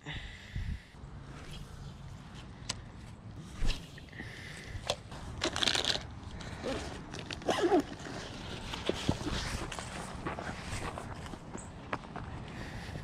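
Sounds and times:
rustling and crinkling gear: 4.8 - 13.0.

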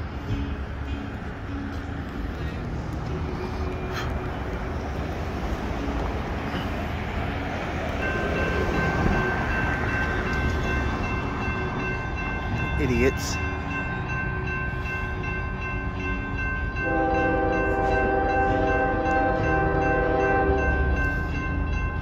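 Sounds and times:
crossing warning bell ringing: 0.0 - 22.0.

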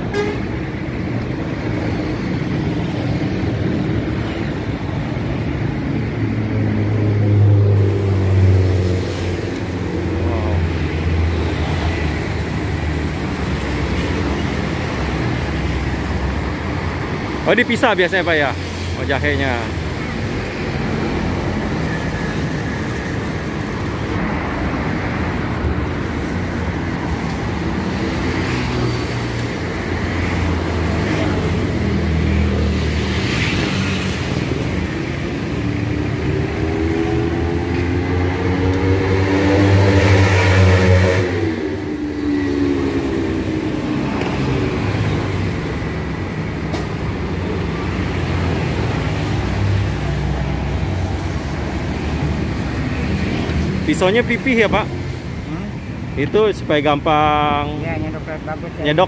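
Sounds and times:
road traffic rumble: 0.0 - 59.0
vehicle passing close: 20.5 - 55.5.

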